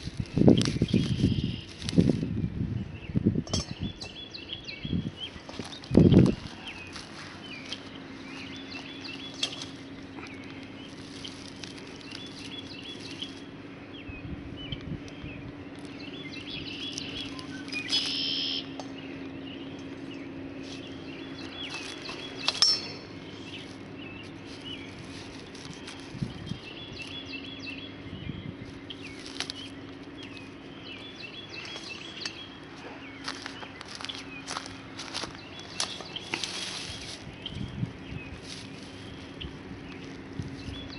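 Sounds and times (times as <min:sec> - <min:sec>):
footsteps rustling dry straw: 0:00.0 - 0:02.4, 0:05.0 - 0:13.6, 0:20.0 - 0:40.9
songbirds chirping: 0:00.0 - 0:40.9.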